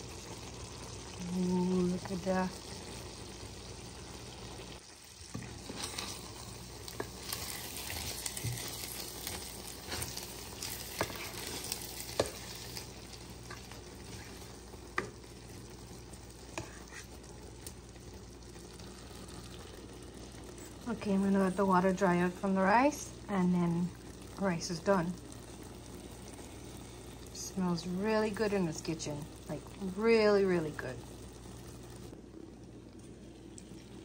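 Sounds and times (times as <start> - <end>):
rice simmering with sizzle: 0.0 - 34.0.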